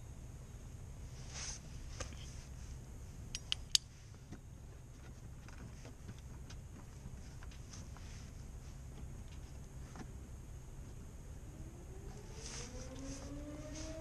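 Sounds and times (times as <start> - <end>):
low steady hum: 0.0 - 14.0
sharp clicks of hand tools: 3.3 - 3.9.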